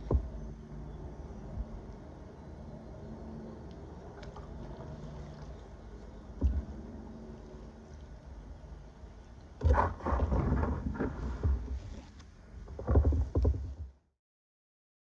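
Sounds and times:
water splashing: 0:09.5 - 0:12.2
kayak paddle strokes: 0:09.6 - 0:13.9.

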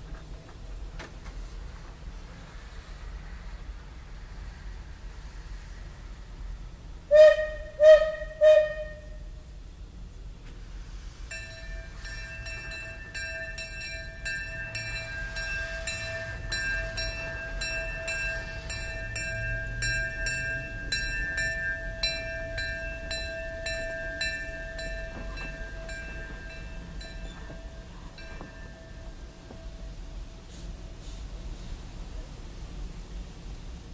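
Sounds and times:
steam whistle toots: 0:07.1 - 0:09.4
locomotive bell ringing: 0:11.3 - 0:30.3.

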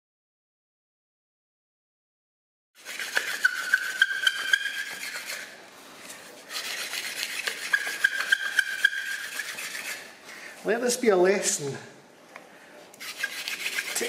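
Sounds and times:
wooden spindle rubbing and squeaking: 0:02.8 - 0:05.6, 0:06.5 - 0:10.1, 0:13.0 - 0:14.0.

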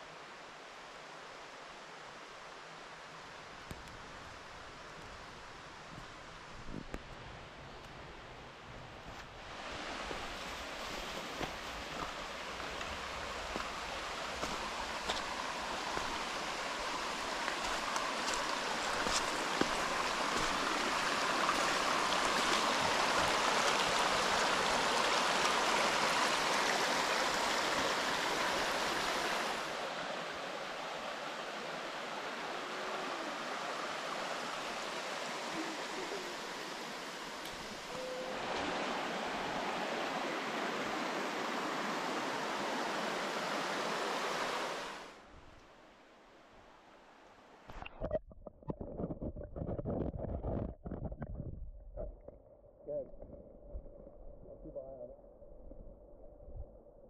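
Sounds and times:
water rushing over rocks: 0:09.4 - 0:45.2.

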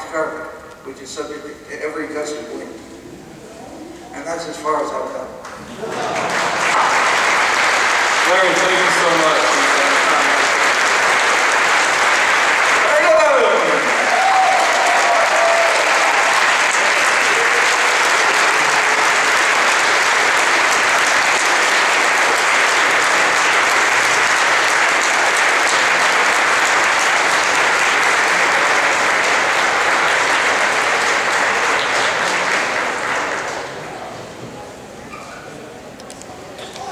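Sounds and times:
audience applauding: 0:05.6 - 0:34.3.

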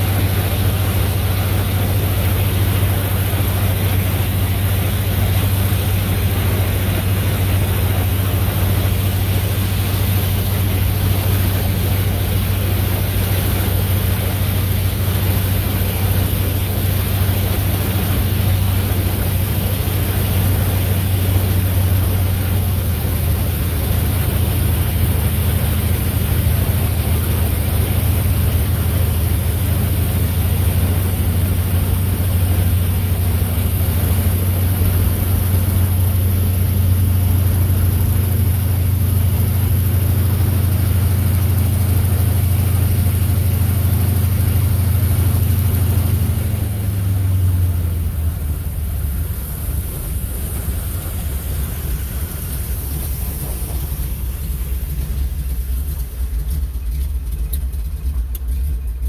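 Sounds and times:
airplane engine droning in cabin: 0:00.0 - 0:59.0.

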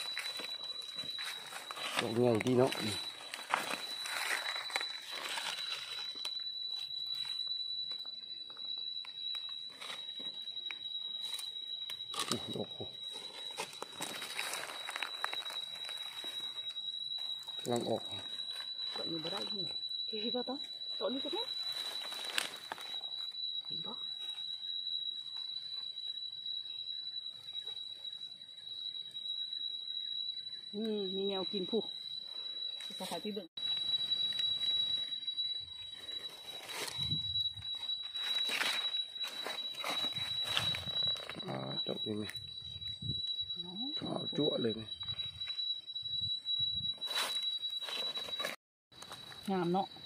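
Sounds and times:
high-pitched whine: 0:00.0 - 0:24.4, 0:30.8 - 0:49.9
dry leaves and twigs crackling: 0:00.0 - 0:25.9, 0:30.8 - 0:50.0
high-pitched insect drone: 0:00.0 - 0:50.0.

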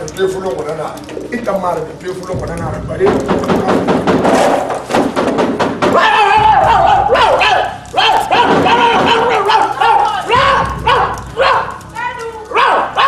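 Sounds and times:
sharp thuds: 0:02.3 - 0:07.5.

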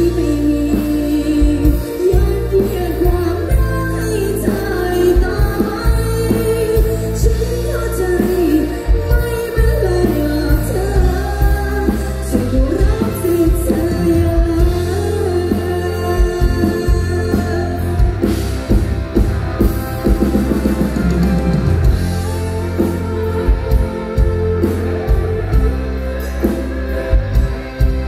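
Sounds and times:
woman singing into microphone: 0:00.0 - 0:18.7
band with heavy bass: 0:00.0 - 0:28.0
steady drum beat: 0:00.8 - 0:28.0.

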